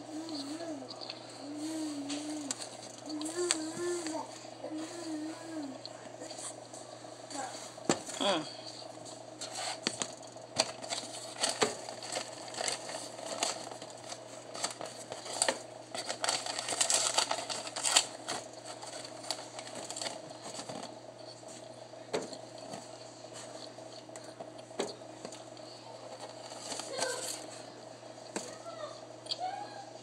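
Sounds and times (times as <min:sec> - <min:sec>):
faint hum: 0:00.0 - 0:30.0.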